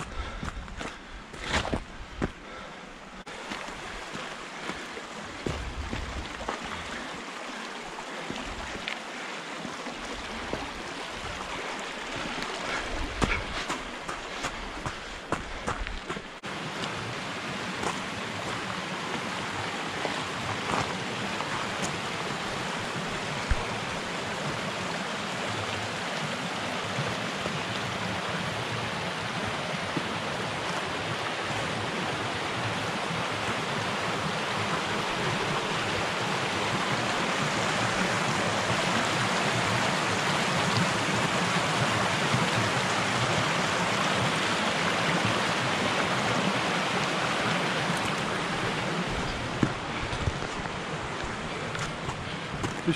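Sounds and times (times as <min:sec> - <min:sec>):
flood water rushing over rocks: 0:00.0 - 0:52.9.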